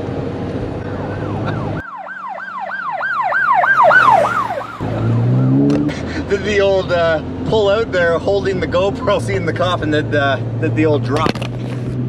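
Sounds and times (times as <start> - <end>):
car road and engine noise: 0.0 - 12.0
police siren sweeping: 0.8 - 5.9.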